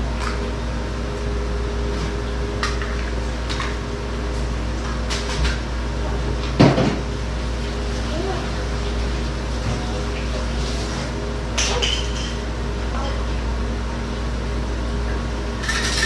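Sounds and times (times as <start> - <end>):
steady hum: 0.0 - 16.0
dishes and utensils clinking: 11.6 - 12.4.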